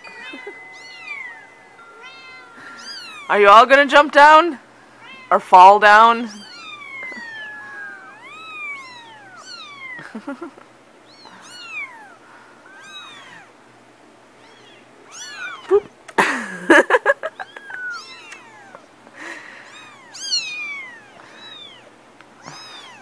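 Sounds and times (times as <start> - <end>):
kittens mewing: 0.0 - 3.4, 6.3 - 13.6, 14.4 - 15.9, 17.3 - 23.0.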